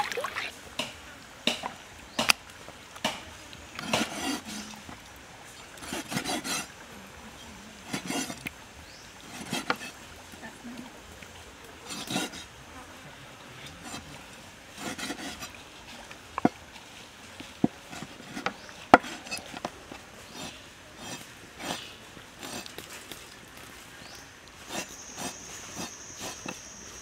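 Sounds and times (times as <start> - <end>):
knife cutting on wooden board: 3.8 - 4.7, 9.4 - 9.9, 14.8 - 15.5, 17.6 - 22.7, 24.7 - 26.6.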